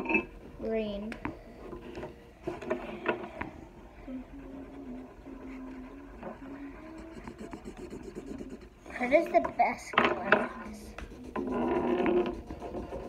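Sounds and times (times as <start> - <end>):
girl humming quietly: 2.8 - 7.8
markers scratching on paper: 4.4 - 9.3, 10.4 - 13.0.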